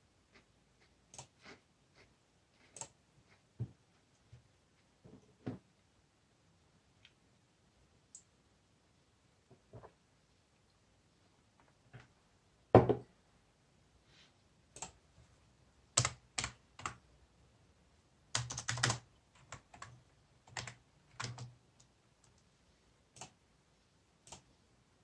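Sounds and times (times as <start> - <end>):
glass set down on wooden desk: 12.8 - 13.0.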